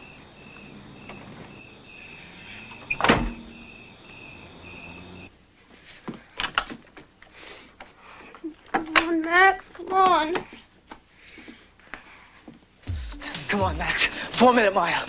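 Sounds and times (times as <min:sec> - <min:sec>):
night insects chirping: 0:00.0 - 0:05.3
vehicle door slamming: 0:02.5 - 0:05.2.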